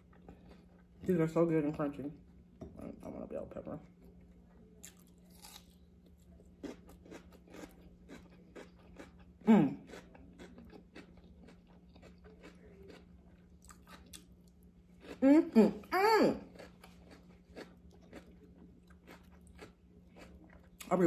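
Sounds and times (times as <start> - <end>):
crunching bell pepper: 4.8 - 21.0.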